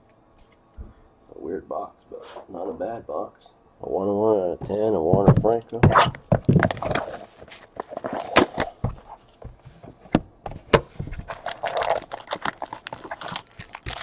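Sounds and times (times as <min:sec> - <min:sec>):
cardboard rustling: 0:05.4 - 0:14.0.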